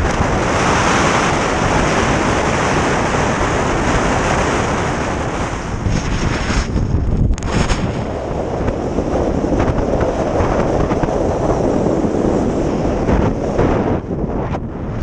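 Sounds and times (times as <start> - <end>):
wind rushing over microphone: 0.0 - 15.0
skis scraping on snow: 2.9 - 13.9.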